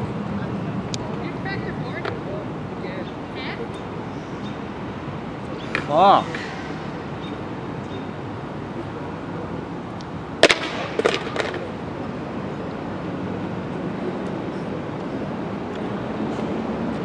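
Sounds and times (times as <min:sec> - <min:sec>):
skateboard clattering knocks: 0:10.4 - 0:11.8
skateboard hitting concrete: 0:10.4 - 0:11.8.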